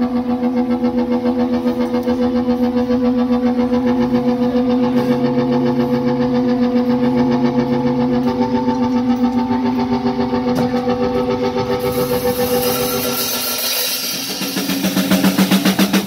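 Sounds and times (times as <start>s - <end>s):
pulsing synthesizer chord: 0.0s - 16.0s.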